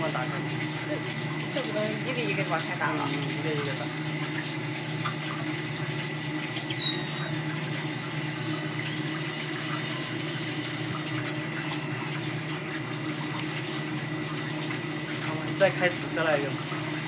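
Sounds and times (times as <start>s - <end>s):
water running through pipe: 0.0s - 17.0s
water spurting: 0.0s - 17.0s
high falling squeak: 6.7s - 7.5s.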